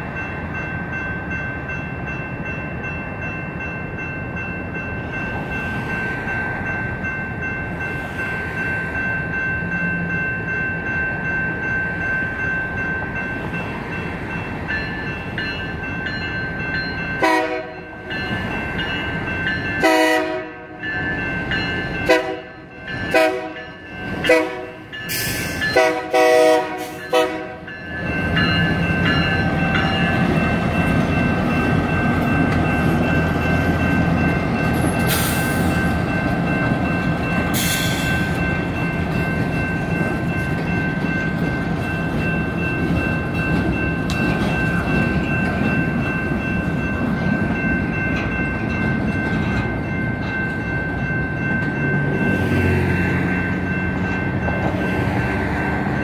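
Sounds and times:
crossing bells ringing: 0.0 - 56.0
freight train rumbling past: 0.0 - 56.0
train horn blasts: 17.2 - 17.9, 19.8 - 20.8, 22.0 - 23.6, 24.2 - 24.9, 25.7 - 27.7.

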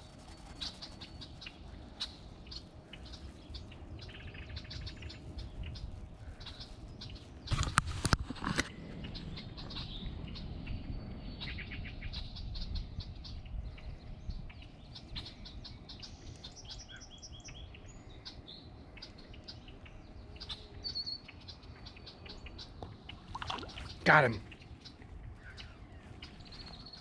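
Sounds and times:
low steady rumble: 0.0 - 7.5
small birds chirping: 0.0 - 27.0.

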